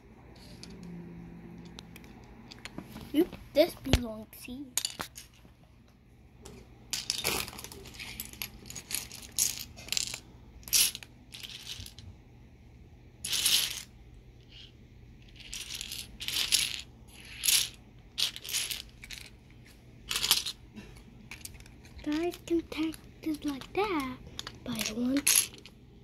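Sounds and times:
plastic pieces clicking and clattering: 7.0s - 12.0s, 13.2s - 13.9s, 14.5s - 19.3s, 20.1s - 20.6s, 21.3s - 25.8s.

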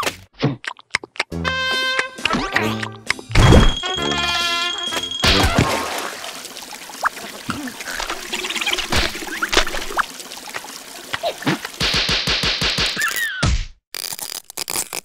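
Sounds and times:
liquid pouring into a puddle: 5.2s - 11.8s
cartoon squeaks and grunts: 13.0s - 13.6s.

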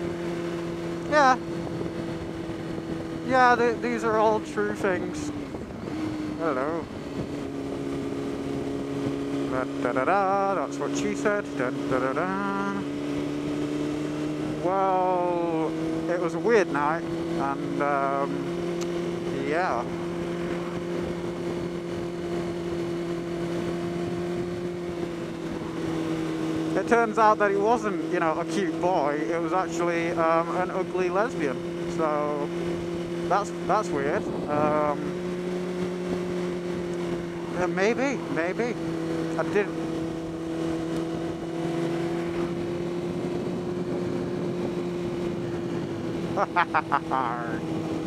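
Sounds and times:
motorcycle engine cruising: 0.0s - 48.0s
wind and road noise: 0.0s - 48.0s.

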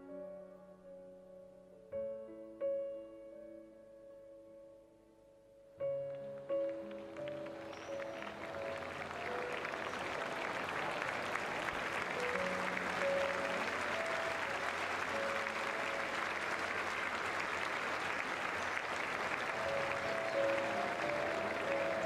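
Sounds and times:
music with held notes: 0.0s - 18.1s, 18.8s - 22.0s
crowd applauding: 6.1s - 22.0s.

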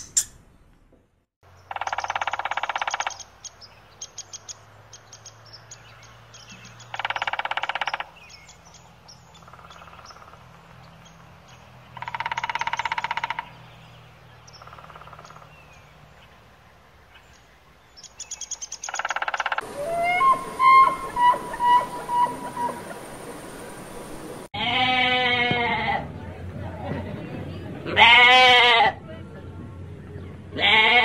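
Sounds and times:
woodpecker rolling churr call: 1.6s - 3.4s, 6.9s - 8.4s, 9.4s - 10.6s, 12.0s - 13.6s, 14.5s - 15.6s, 18.1s - 24.3s.

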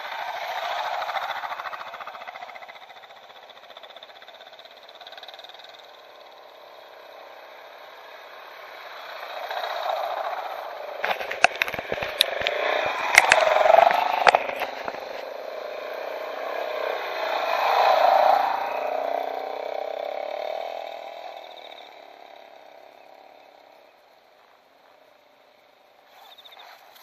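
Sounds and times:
motorcycles passing: 0.0s - 27.0s
sharp clicks and knocks: 11.0s - 15.2s.

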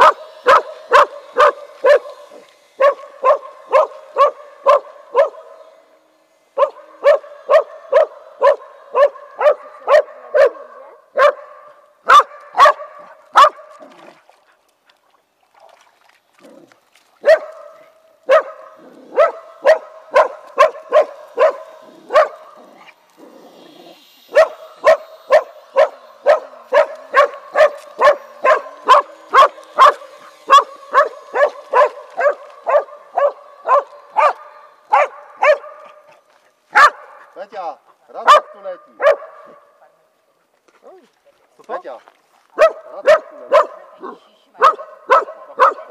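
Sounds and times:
small dog barking: 0.0s - 5.6s, 6.6s - 13.7s, 17.2s - 22.8s, 24.3s - 36.0s, 36.7s - 37.2s, 38.2s - 39.7s, 42.6s - 45.9s.

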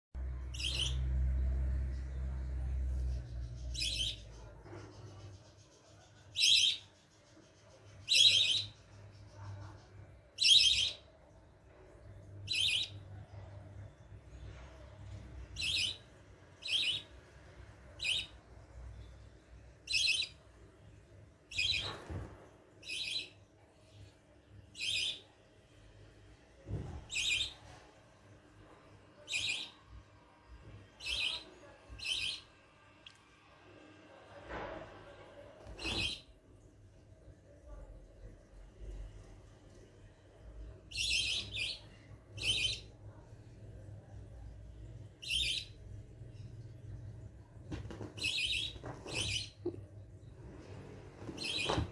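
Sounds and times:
budgerigar chirping: 42.4s - 42.9s.

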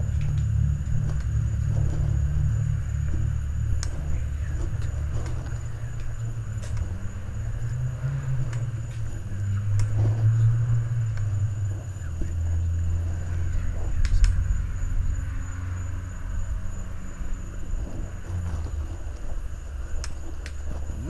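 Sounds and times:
microphone handling rumble: 0.0s - 21.0s
faint clicks: 3.8s - 6.9s, 8.4s - 10.2s, 13.5s - 14.4s.

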